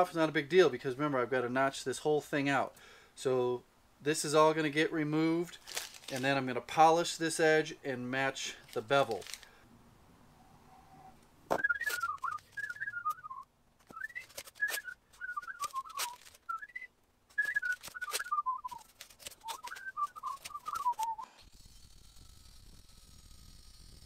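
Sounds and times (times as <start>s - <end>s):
tape ripping off roll: 5.6s - 6.3s, 8.6s - 9.5s, 11.5s - 13.2s, 13.8s - 22.0s
man whistling a tune: 11.5s - 21.3s.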